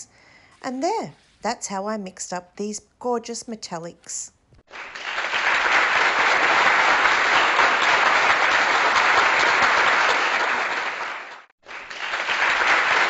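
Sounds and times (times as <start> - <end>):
crowd clapping: 4.7 - 13.0.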